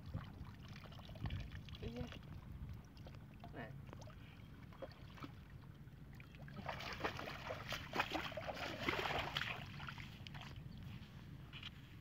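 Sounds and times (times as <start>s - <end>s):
footsteps splashing through water: 6.6s - 10.6s.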